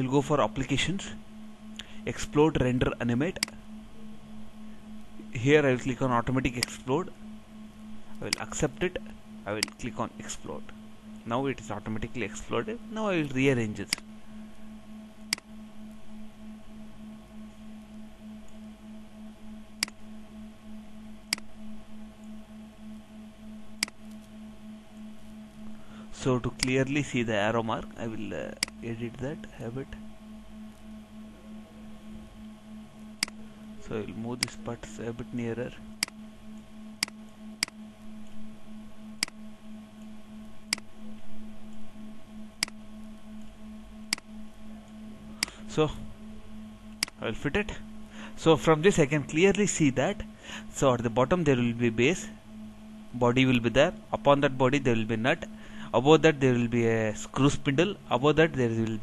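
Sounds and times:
low electrical hum: 0.0 - 59.0
computer mouse clicks: 9.6 - 9.8, 44.1 - 44.3.

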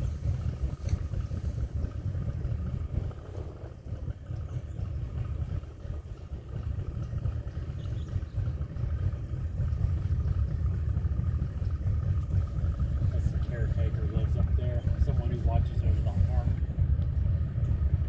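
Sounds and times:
boat motor running: 0.0 - 18.0.

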